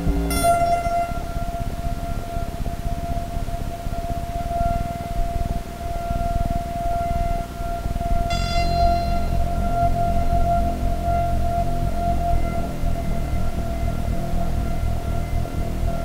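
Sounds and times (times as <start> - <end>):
high sine tone: 0.0 - 16.0
bright buzzy tone: 8.3 - 9.7.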